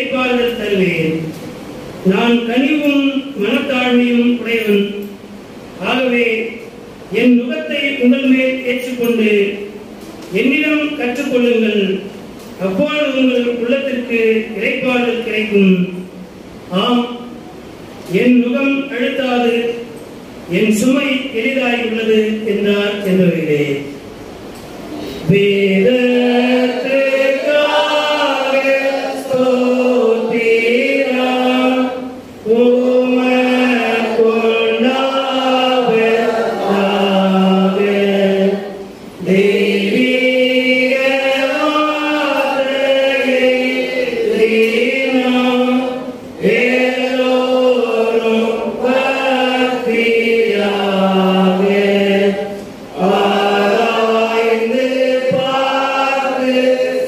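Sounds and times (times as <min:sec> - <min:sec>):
voices singing a slow hymn: 0:25.1 - 0:57.0.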